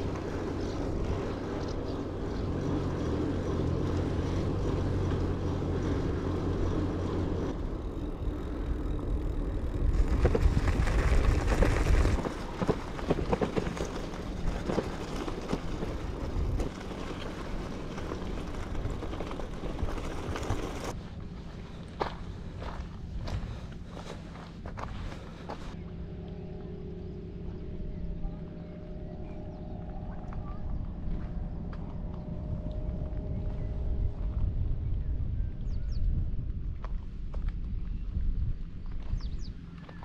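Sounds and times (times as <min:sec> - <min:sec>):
bicycle tyres rumbling: 0:00.0 - 0:40.0
steady engine-like hum: 0:00.0 - 0:40.0
wind on microphone: 0:07.4 - 0:16.9, 0:29.1 - 0:39.6.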